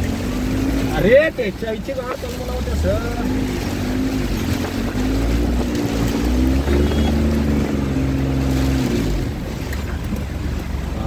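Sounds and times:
vehicle engine running: 0:00.0 - 0:11.0
wind rumble on microphone: 0:02.4 - 0:11.0.

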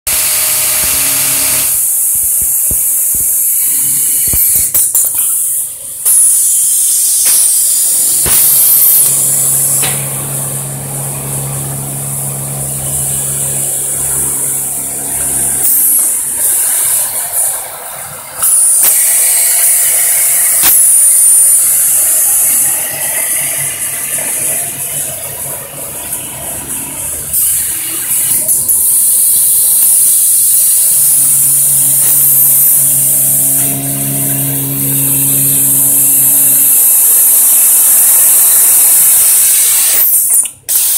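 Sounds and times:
sewing motor humming: 0:07.9 - 0:20.7, 0:28.8 - 0:40.0.

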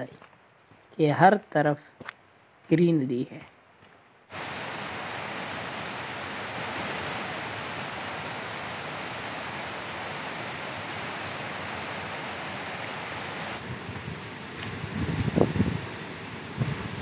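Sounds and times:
mountain stream rushing: 0:03.8 - 0:17.0.

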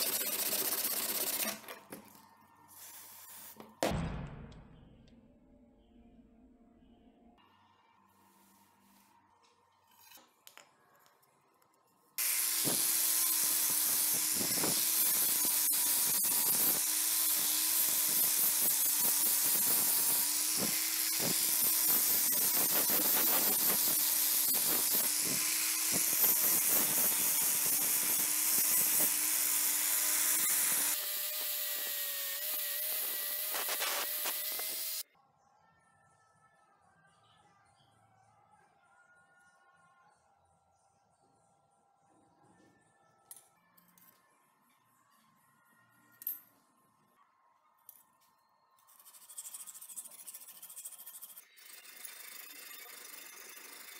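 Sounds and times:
angle grinder grinding steel: 0:12.2 - 0:35.0.

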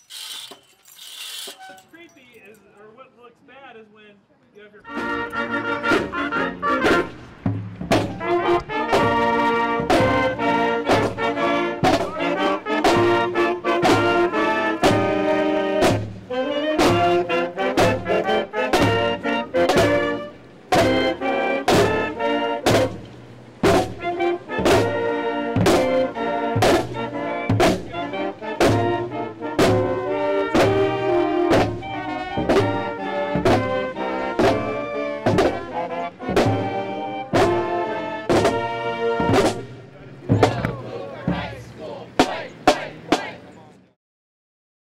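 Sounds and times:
marching band playing: 0:04.7 - 0:43.6
brass chords: 0:04.8 - 0:43.4
drum beat: 0:04.9 - 0:16.2, 0:20.7 - 0:23.0, 0:23.6 - 0:28.0, 0:28.6 - 0:29.0, 0:29.6 - 0:30.0, 0:30.6 - 0:35.7, 0:36.3 - 0:43.5
drum hits: 0:06.8 - 0:12.2, 0:23.6 - 0:24.0, 0:26.6 - 0:27.9, 0:31.5 - 0:31.8, 0:35.3 - 0:35.6, 0:38.3 - 0:43.4.

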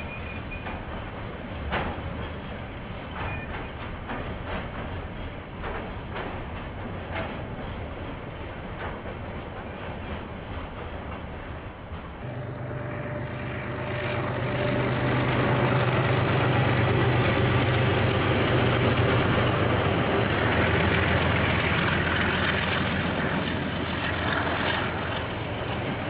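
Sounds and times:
diesel locomotive engine running: 0:00.0 - 0:26.0.

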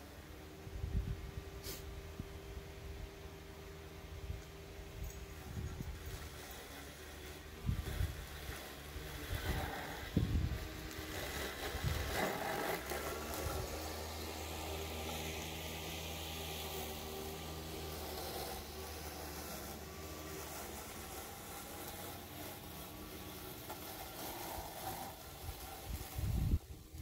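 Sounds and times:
electric lawn mower motor humming: 0:00.0 - 0:27.0
wind buffeting microphone: 0:09.2 - 0:10.8, 0:25.4 - 0:27.0.

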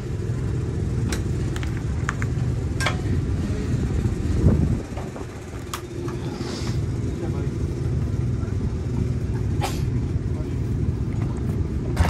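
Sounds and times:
low engine drone: 0:00.0 - 0:12.0.

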